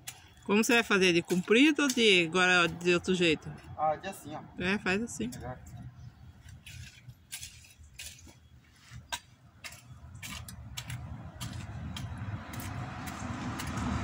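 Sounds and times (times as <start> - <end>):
garden tool striking soil and stones: 0.0 - 2.8, 6.4 - 14.0
low traffic rumble: 0.0 - 14.0.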